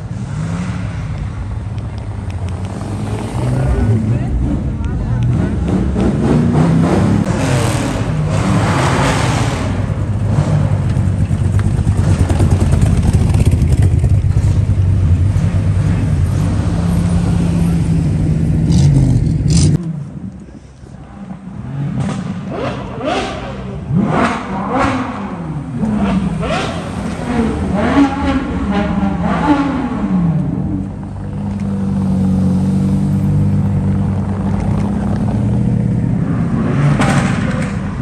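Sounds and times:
engine rumbling at low speed: 0.0s - 8.7s, 9.6s - 38.0s
car engine revving: 0.0s - 19.9s, 21.3s - 38.0s
tyres rolling over cobblestones: 10.1s - 17.8s.

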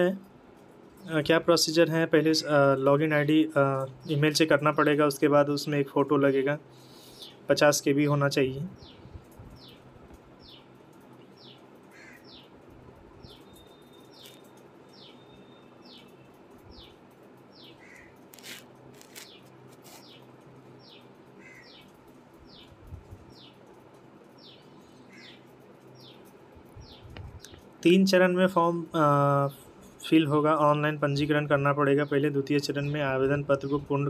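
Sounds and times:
faint steady hum: 0.0s - 34.0s
bird chirping: 3.7s - 29.0s.

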